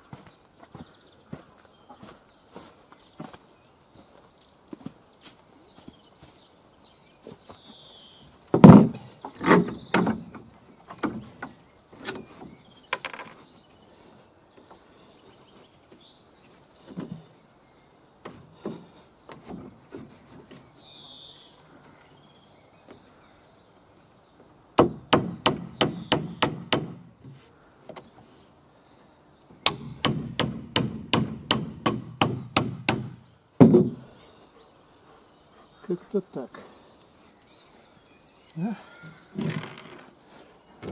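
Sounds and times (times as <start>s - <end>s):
heavier knocks on timber: 8.5s - 10.3s, 29.6s - 34.0s
hammer striking nails: 24.8s - 27.0s, 29.6s - 34.0s.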